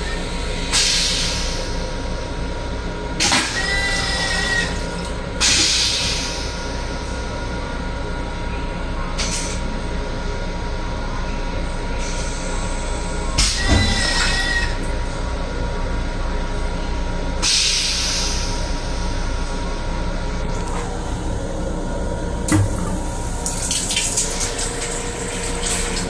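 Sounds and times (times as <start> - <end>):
toilet flush hissing: 22.5 - 26.0.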